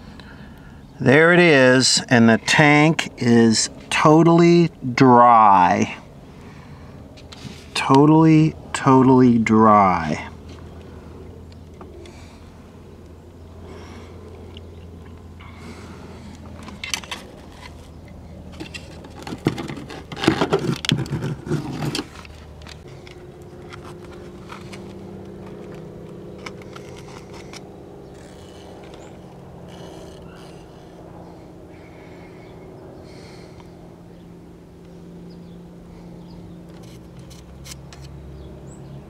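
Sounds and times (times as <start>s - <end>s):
metal scraping against fuel tank: 16.6s - 22.4s.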